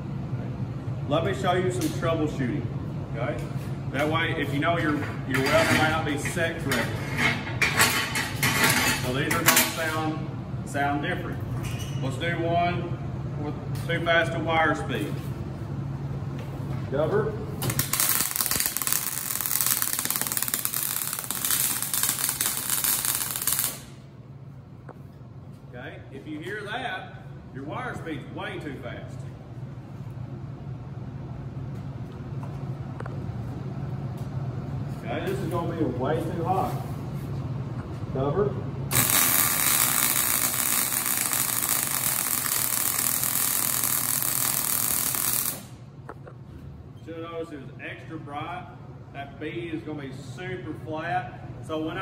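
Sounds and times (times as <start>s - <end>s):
welder arc crackling: 17.6s - 24.0s, 38.9s - 45.9s.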